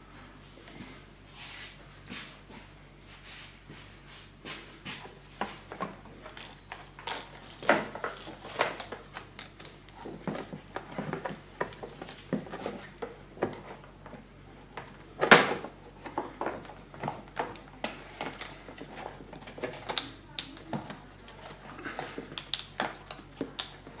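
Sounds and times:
plastic rustling and scraping: 3.2 - 20.0.

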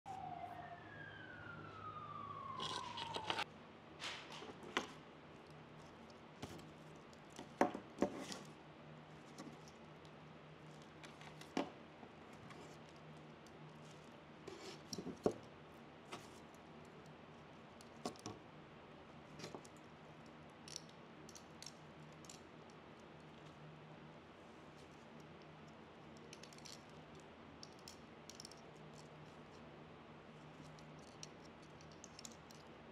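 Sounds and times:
long falling tone: 0.1 - 3.4.

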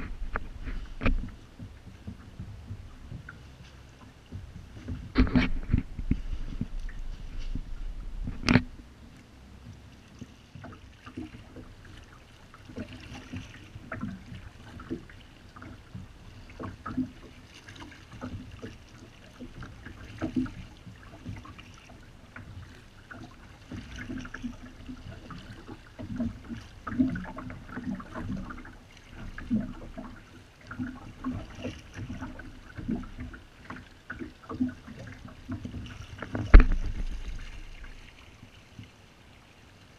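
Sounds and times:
kayak paddle splashing: 0.0 - 39.9
water dripping and sloshing: 0.0 - 39.9.

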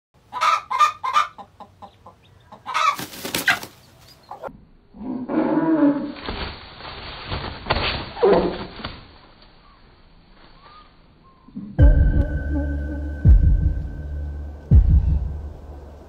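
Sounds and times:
hen clucking: 0.2 - 4.5
hen squawking: 0.3 - 3.7
muffled thumps: 14.7 - 15.6.

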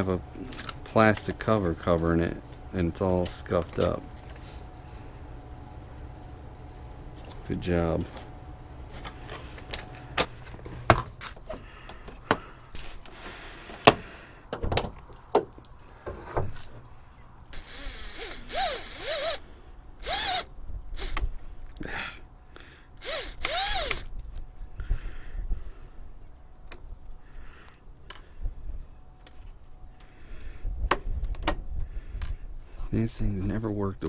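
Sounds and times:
cordless driver whining: 17.5 - 21.9, 23.0 - 24.2.

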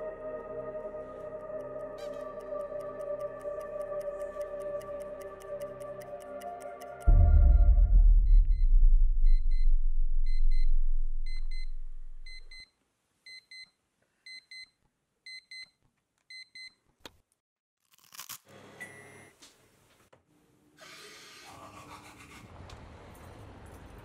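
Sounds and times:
deep low drone: 7.1 - 12.5
alarm clock double beeps: 7.1 - 12.7.

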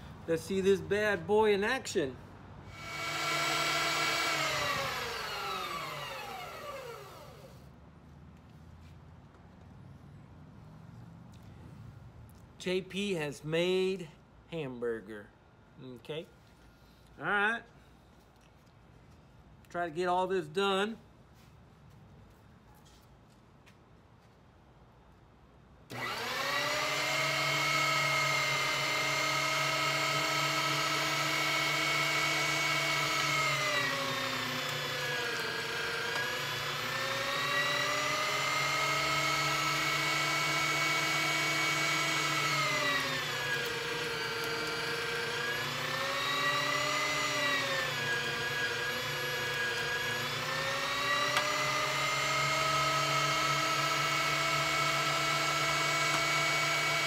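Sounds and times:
meat grinder motor whining: 2.7 - 7.6, 25.9 - 57.0.

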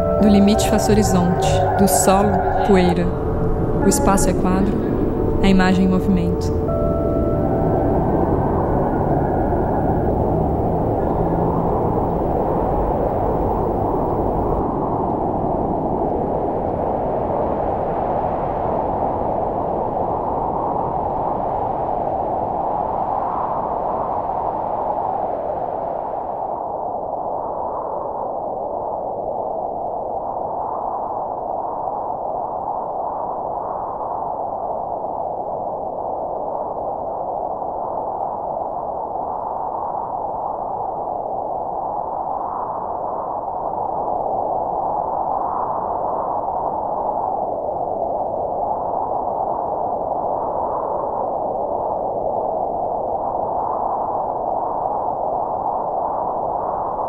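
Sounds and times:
filtered rushing drone: 0.0 - 14.6.

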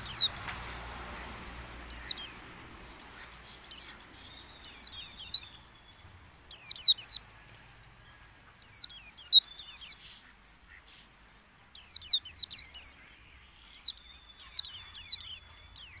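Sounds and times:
bird singing rapid high chirps: 0.0 - 1.0, 1.8 - 7.2, 8.6 - 10.2, 11.3 - 16.0.

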